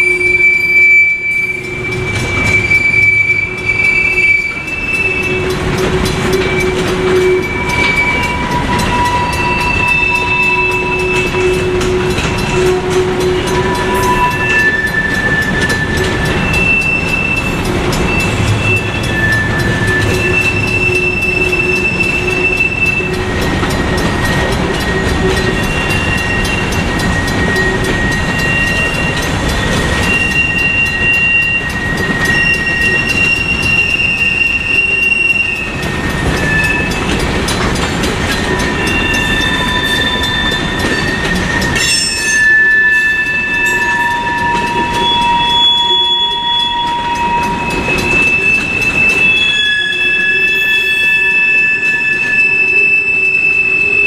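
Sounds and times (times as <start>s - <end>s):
freight train rolling over rails: 0.0s - 54.0s
wheels squealing: 0.0s - 54.0s.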